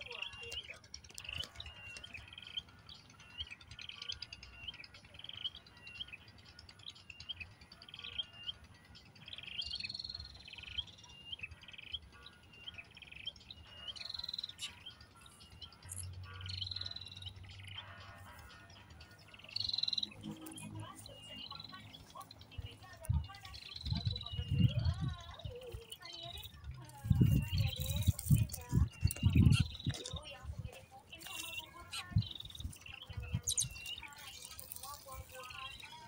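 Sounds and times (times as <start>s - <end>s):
sparrows chirping: 0.0s - 36.0s.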